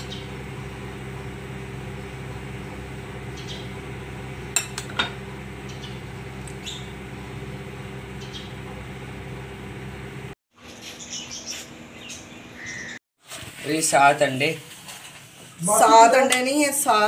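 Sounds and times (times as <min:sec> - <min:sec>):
low hum: 0:00.0 - 0:10.4.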